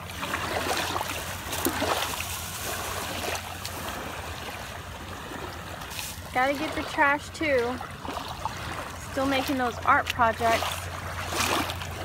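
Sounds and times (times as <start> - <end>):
soft water splashes: 0.0 - 12.0
wavelets washing over sand: 0.0 - 12.0.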